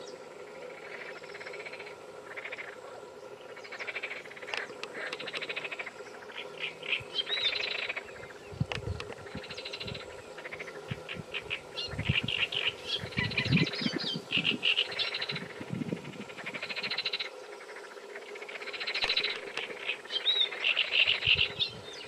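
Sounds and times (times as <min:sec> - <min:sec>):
frogs croaking: 0:00.0 - 0:22.0
high chirping calls: 0:06.2 - 0:15.4.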